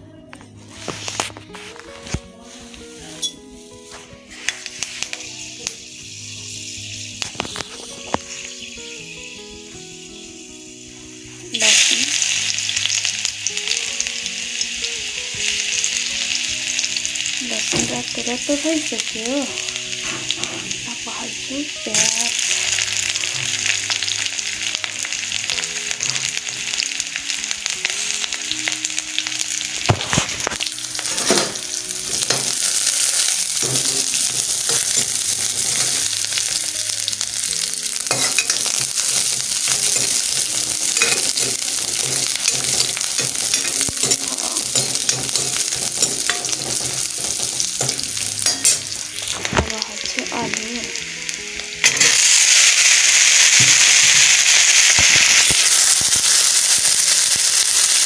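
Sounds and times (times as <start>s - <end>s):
onion sizzling in hot oil: 0.6s - 58.0s
spoon knocking against pan: 39.8s - 49.0s.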